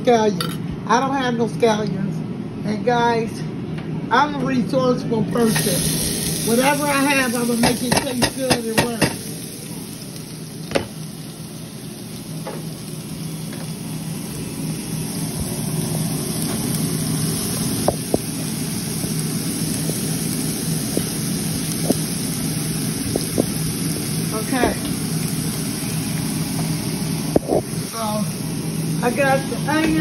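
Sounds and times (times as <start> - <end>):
steady low hum: 0.0 - 30.0
onions sizzling in oil: 5.4 - 30.0
utensils knocking on cookware: 7.6 - 9.2.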